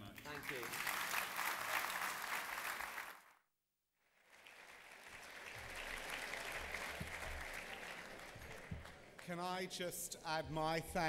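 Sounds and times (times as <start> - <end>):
audience applauding: 0.0 - 3.3, 4.2 - 9.4.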